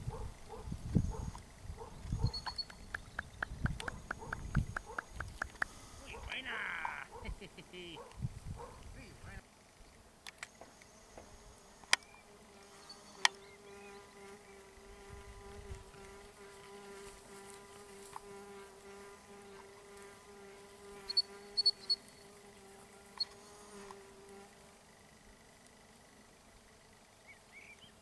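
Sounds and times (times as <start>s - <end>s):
flying insect buzzing: 0.0s - 8.8s, 9.4s - 28.0s
sharp clicks: 2.4s - 5.8s.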